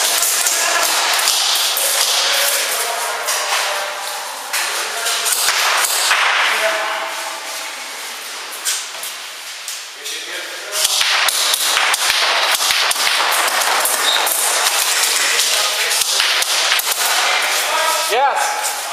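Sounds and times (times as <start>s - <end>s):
airsoft guns firing: 10.9s - 15.4s.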